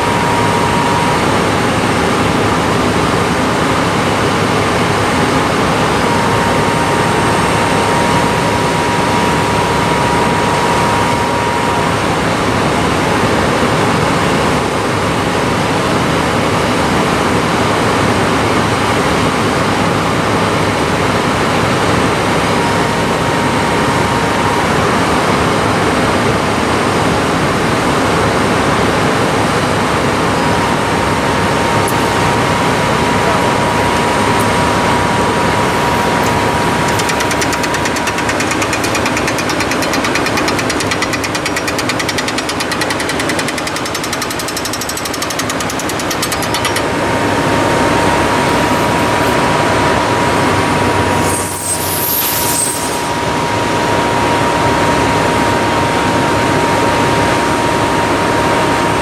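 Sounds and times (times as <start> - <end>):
thin high whine: 0.0 - 13.3, 30.8 - 55.7
hydraulic machinery running: 0.0 - 17.1, 27.6 - 59.0.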